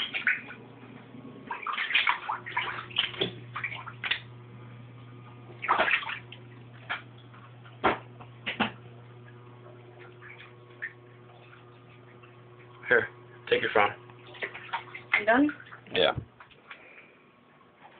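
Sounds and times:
water splashing on floor: 0.0s - 0.6s, 1.4s - 4.3s, 5.4s - 8.8s, 14.2s - 16.8s
low steady hum: 0.0s - 17.9s.

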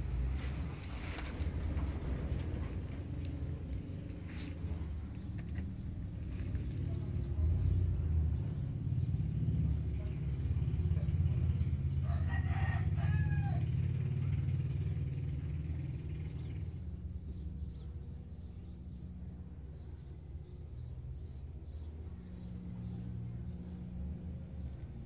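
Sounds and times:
rooster crowing: 12.0s - 13.7s.

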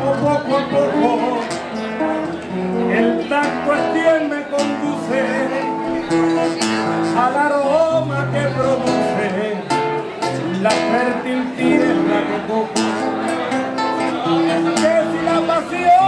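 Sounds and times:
acoustic guitar playing: 0.0s - 16.0s.

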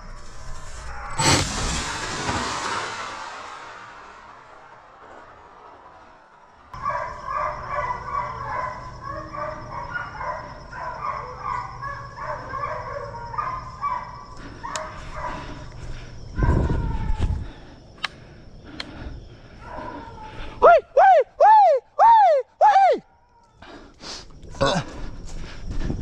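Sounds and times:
loud low rumble: 1.2s - 6.7s
hounds baying: 6.8s - 16.6s.

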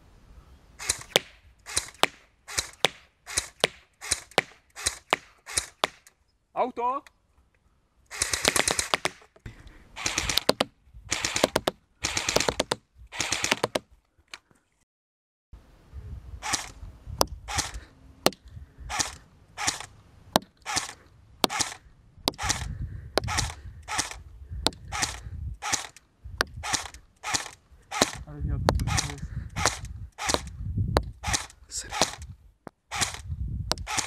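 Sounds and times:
airsoft gun firing: 8.1s - 9.2s, 10.0s - 13.8s, 17.5s - 26.0s, 26.6s - 28.2s, 28.8s - 30.5s, 31.2s - 32.3s, 32.9s - 33.2s.

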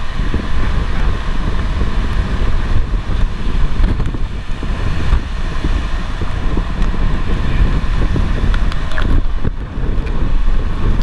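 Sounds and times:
storm wind and rain buffeting vehicle: 0.0s - 11.0s
vehicle engine and road noise: 0.0s - 11.0s.

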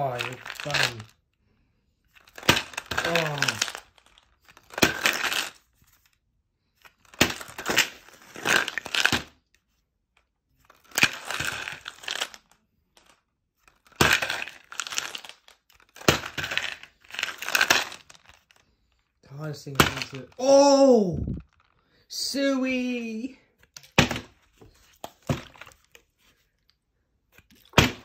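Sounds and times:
sweets rattling in plastic bottle: 0.0s - 1.2s, 2.2s - 5.8s, 7.0s - 9.4s, 10.7s - 18.6s, 19.3s - 20.6s, 21.2s - 21.8s.

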